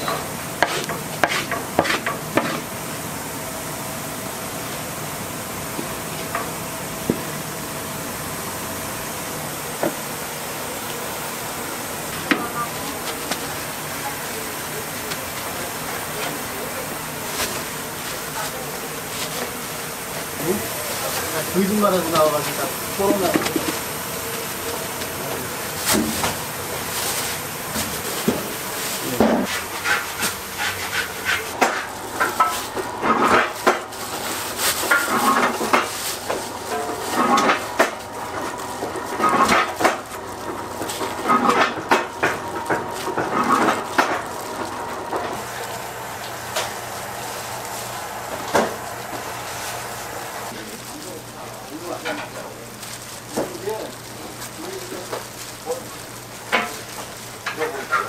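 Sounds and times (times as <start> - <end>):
dough knocking and scraping: 0.1 - 2.7, 25.8 - 50.6
wooden paddle scraping a pan: 0.6 - 2.6, 29.4 - 32.5
steady rushing background noise: 26.8 - 51.9.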